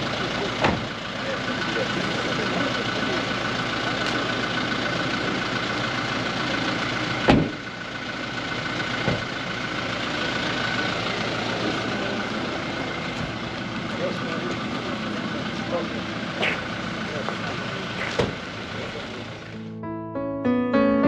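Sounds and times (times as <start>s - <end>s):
car engine idling: 0.0s - 19.7s
car door slamming: 0.6s - 1.0s, 7.2s - 7.6s, 9.0s - 9.4s, 18.0s - 18.5s.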